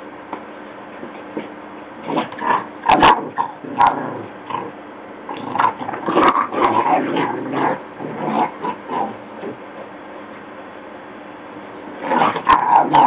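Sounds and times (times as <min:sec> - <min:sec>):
dogs growling and yapping: 0:01.4 - 0:09.7, 0:11.9 - 0:13.0.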